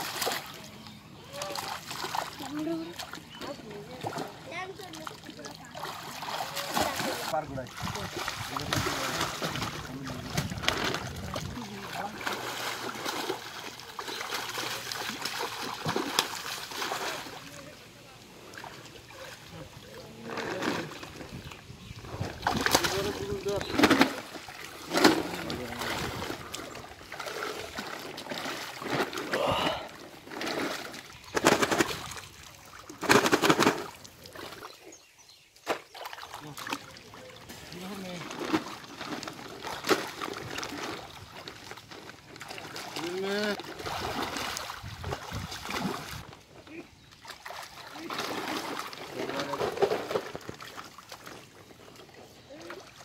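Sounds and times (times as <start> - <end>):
muddy water sloshing: 0.0 - 53.0
fish thrashing splashes: 1.3 - 17.6, 22.0 - 34.8, 38.2 - 46.3, 47.2 - 51.4.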